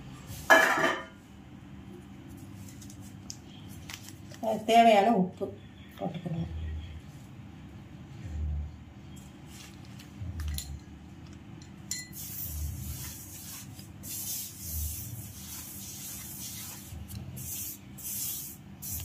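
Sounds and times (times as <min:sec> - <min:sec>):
spoon clinking on bowl: 0:11.6 - 0:12.2
hand rubbing flour in metal bowl: 0:12.4 - 0:18.6.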